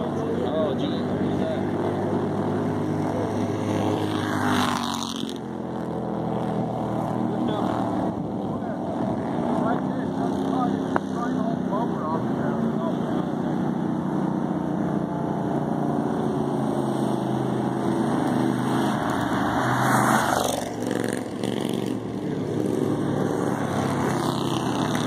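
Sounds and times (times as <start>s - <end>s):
small race car engines buzzing: 0.0s - 25.0s.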